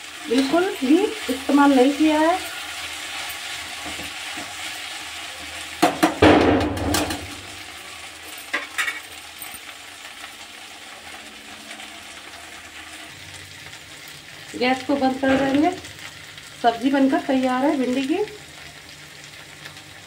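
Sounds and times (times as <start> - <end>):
okra sizzling in a pan: 0.0 - 20.0
metal spatula scraping a pan: 0.1 - 5.0.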